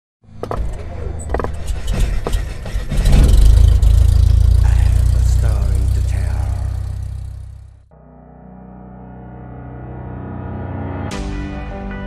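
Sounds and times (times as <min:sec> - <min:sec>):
deep rumble: 0:00.7 - 0:07.9.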